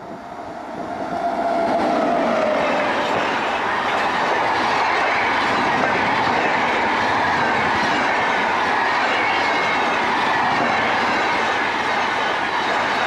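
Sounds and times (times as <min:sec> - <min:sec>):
train wheels clattering on rail: 0:01.3 - 0:13.0.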